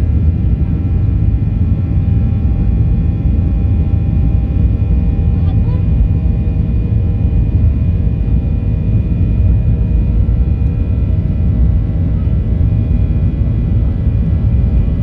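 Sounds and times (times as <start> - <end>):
airliner cabin rumble: 0.0 - 15.0.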